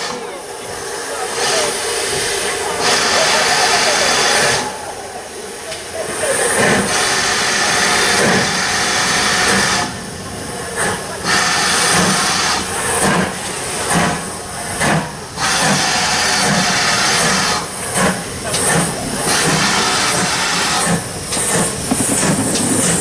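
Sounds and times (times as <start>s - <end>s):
loud steam hiss: 0.0s - 23.0s
steam locomotive exhaust chuffs: 6.1s - 23.0s.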